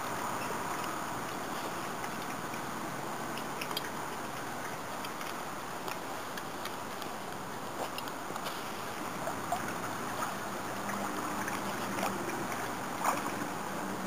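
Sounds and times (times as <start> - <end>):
faint low hum: 0.0 - 14.0
running water rushing: 0.0 - 14.0.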